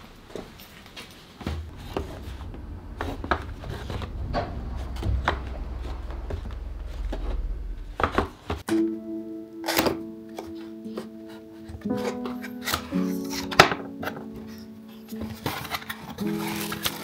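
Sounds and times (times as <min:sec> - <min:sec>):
low steady hum: 0:01.4 - 0:08.7.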